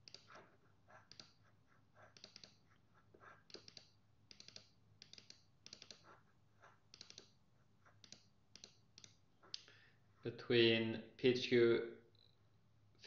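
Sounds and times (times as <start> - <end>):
computer mouse clicking: 0.0 - 9.7.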